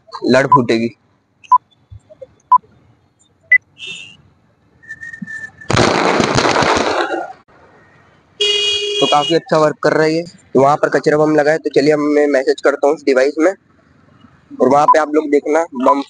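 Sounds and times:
firecrackers crackling: 5.3s - 7.4s.

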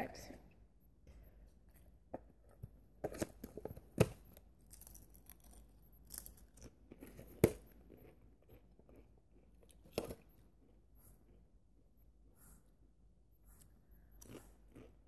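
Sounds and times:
crunching potato crisp: 4.6s - 10.2s.

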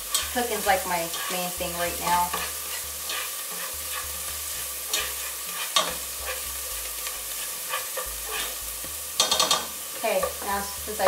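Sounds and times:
onions sizzling in hot oil: 0.0s - 11.0s
spatula scraping and tapping pot: 2.0s - 10.5s.

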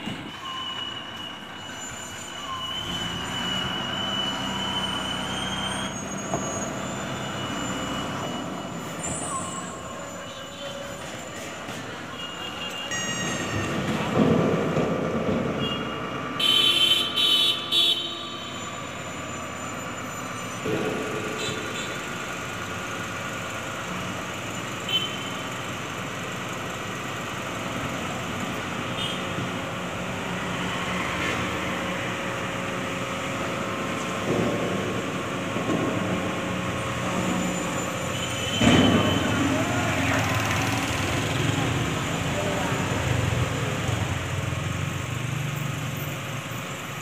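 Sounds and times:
diesel truck engine running: 18.6s - 47.0s.

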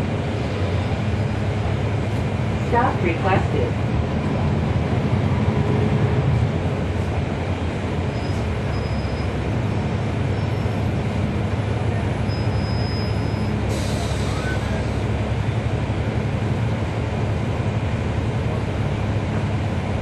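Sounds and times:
bus diesel engine running: 0.0s - 20.0s
cabin and road noise: 0.0s - 20.0s
brief air hiss: 13.7s - 14.6s.

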